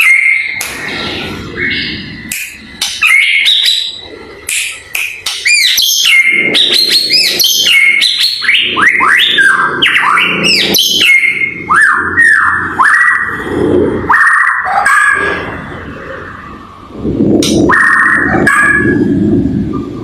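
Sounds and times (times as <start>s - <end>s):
bird singing whistled phrases: 0.0s - 0.6s, 5.4s - 13.3s
sharp bird clicks: 2.3s - 3.8s, 4.4s - 6.0s.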